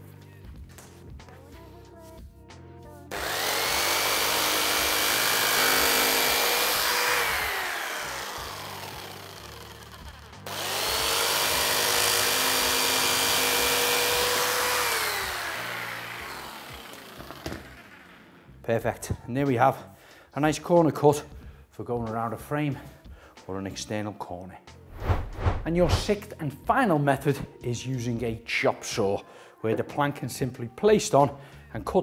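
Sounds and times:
electric jigsaw cutting: 0:03.1 - 0:18.4.

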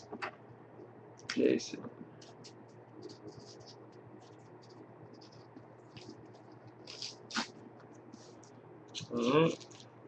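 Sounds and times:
pen scratching on paper: 0:02.2 - 0:07.5.

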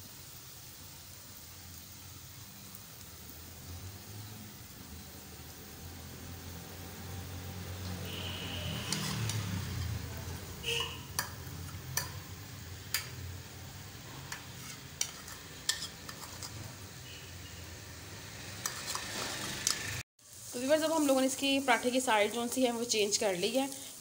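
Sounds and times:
flatbread sizzling on a griddle: 0:00.0 - 0:24.0
sharp pops and ticks: 0:10.8 - 0:13.3.

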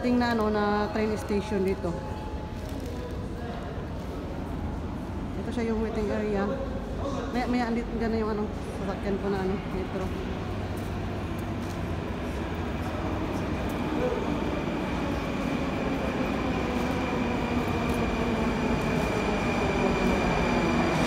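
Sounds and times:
metro train rumble: 0:07.6 - 0:21.0.

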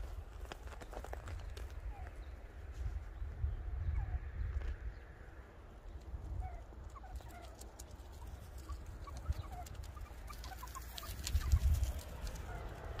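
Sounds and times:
wind rumble on microphone: 0:00.0 - 0:13.0
meerkats chirping: 0:06.3 - 0:12.8.

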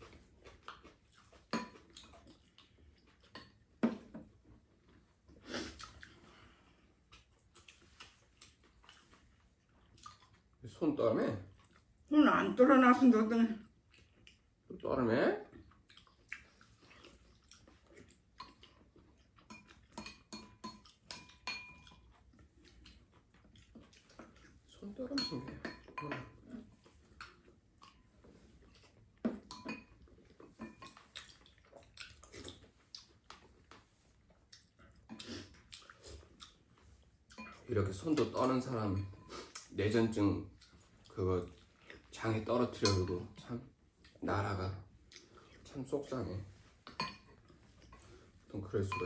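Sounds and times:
spoons clinking on ceramic bowls: 0:19.4 - 0:22.2, 0:25.0 - 0:26.4, 0:29.3 - 0:31.0, 0:37.4 - 0:39.3, 0:42.6 - 0:43.5, 0:46.9 - 0:48.1, 0:48.7 - 0:49.0.

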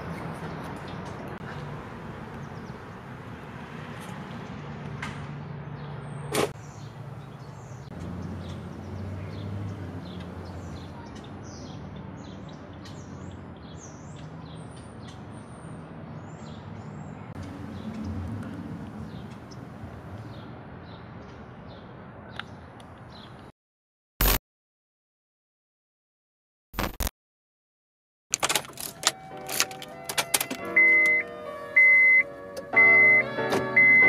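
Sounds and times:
small birds chirping: 0:00.0 - 0:03.4, 0:05.7 - 0:23.5.

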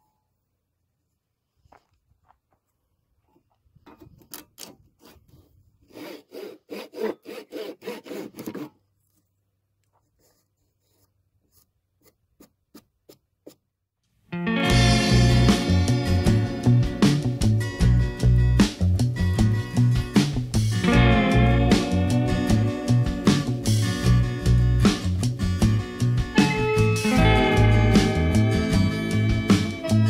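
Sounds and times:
handsaw cutting wood: 0:05.0 - 0:08.8.

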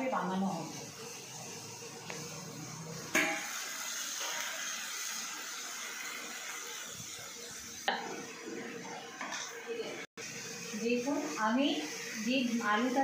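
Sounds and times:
chicken sizzling in hot oil: 0:00.0 - 0:13.0
pan clatter: 0:03.1 - 0:03.6.

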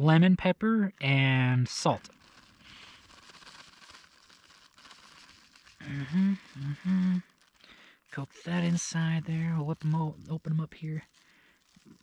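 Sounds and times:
man's voice: 0:00.0 - 0:02.1, 0:08.2 - 0:11.0
faint rustling and handling: 0:01.9 - 0:12.0.

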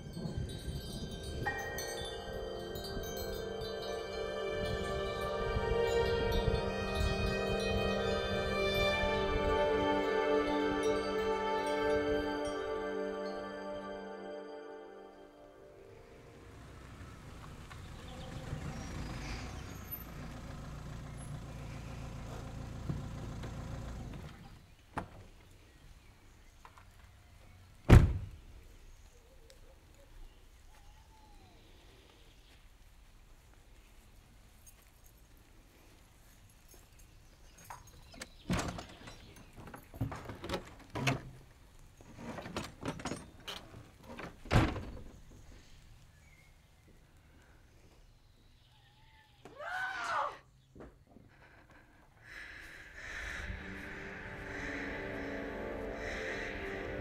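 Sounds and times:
car engine idling: 0:16.3 - 0:24.4
car door slamming: 0:27.9 - 0:28.3
wooden door clunking and rattling: 0:38.2 - 0:41.5, 0:42.1 - 0:45.3.

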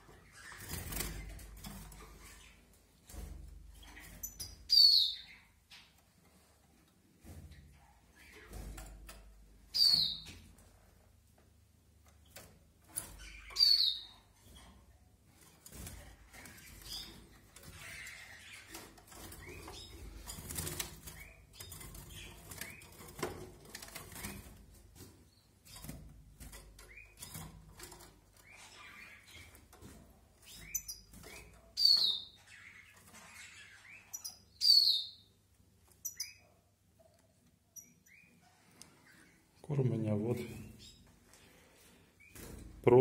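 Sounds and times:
birds fluttering in cage: 0:00.0 - 0:04.7, 0:07.2 - 0:10.8, 0:14.2 - 0:34.4, 0:39.8 - 0:43.0
soft bird chirps: 0:03.7 - 0:06.0, 0:09.7 - 0:10.4, 0:13.0 - 0:14.8, 0:16.1 - 0:23.0, 0:30.4 - 0:39.6.

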